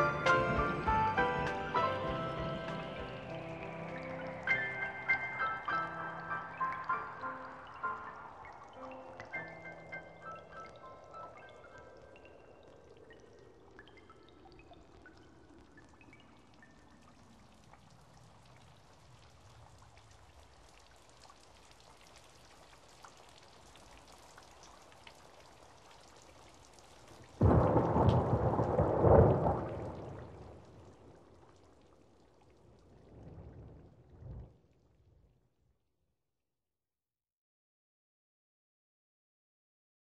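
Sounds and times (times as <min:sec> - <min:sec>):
light rain: 0:00.0 - 0:35.0
thunder rumbling: 0:27.4 - 0:31.1.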